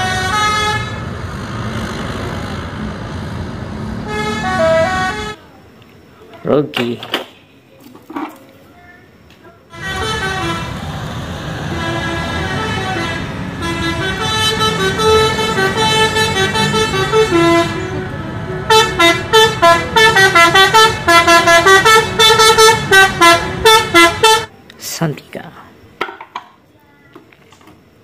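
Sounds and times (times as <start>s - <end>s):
multi-tone melodic bus horn: 0.0s - 3.2s, 3.9s - 5.4s, 9.7s - 24.5s
bus engine running: 0.0s - 5.4s, 9.7s - 24.5s.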